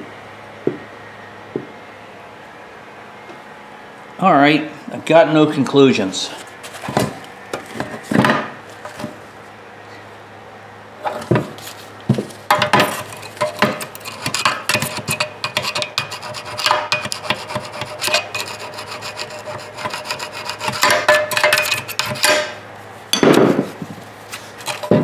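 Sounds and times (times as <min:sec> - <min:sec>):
screwdriver scraping metal: 0:12.8 - 0:22.4, 0:24.6 - 0:25.0.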